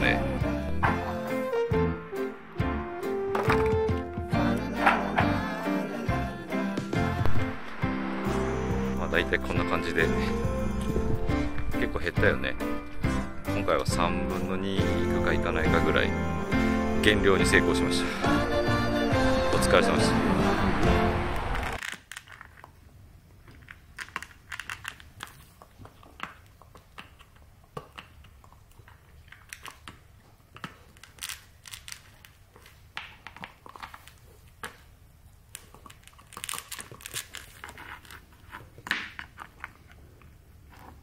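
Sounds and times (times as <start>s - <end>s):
voice: 0.0s - 1.1s, 8.4s - 11.1s, 11.7s - 12.6s, 13.5s - 16.2s, 17.0s - 20.8s
music: 0.0s - 21.8s
puppy chewing a toy: 23.4s - 41.0s.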